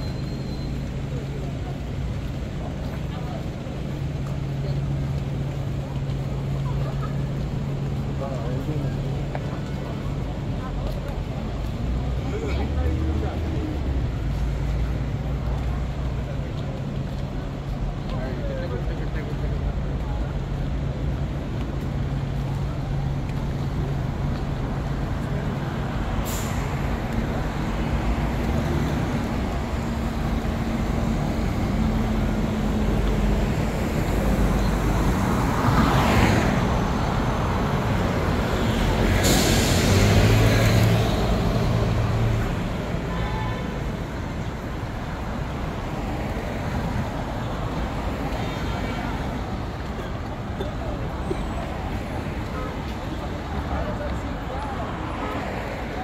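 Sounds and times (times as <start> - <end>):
vehicles passing close: 0.0 - 56.0
sharp hiss: 39.2 - 40.0.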